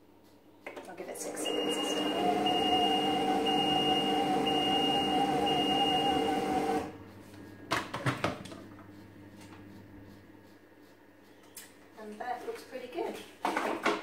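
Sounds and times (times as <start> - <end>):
kitchen appliance motor humming: 1.1 - 7.0.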